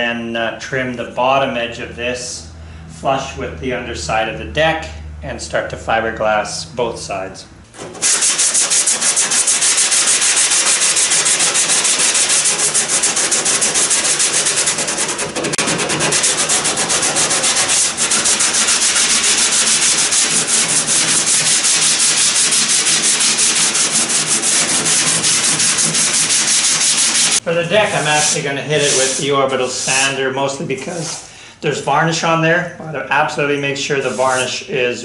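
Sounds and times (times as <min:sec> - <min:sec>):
hand sanding with sponge: 0:07.9 - 0:31.3, 0:33.9 - 0:34.6.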